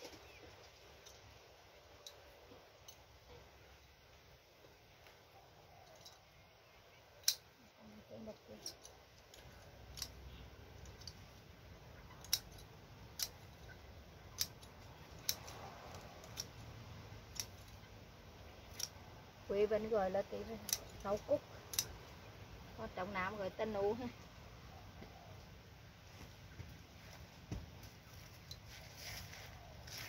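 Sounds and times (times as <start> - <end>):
scissors snipping stems: 7.2 - 7.5, 8.1 - 11.3, 12.0 - 17.9, 18.6 - 19.0, 19.7 - 22.1.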